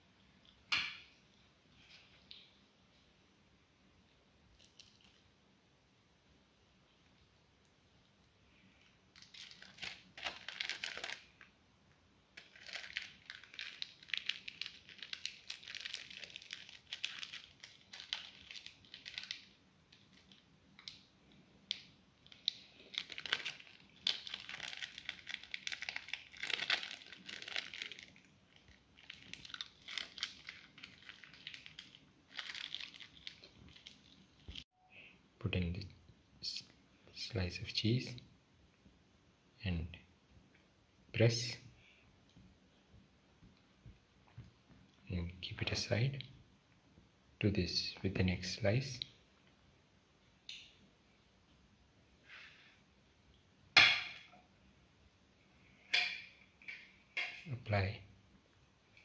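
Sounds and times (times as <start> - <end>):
plastic wrapping crinkling: 4.5 - 5.2, 8.8 - 11.6, 12.3 - 34.6.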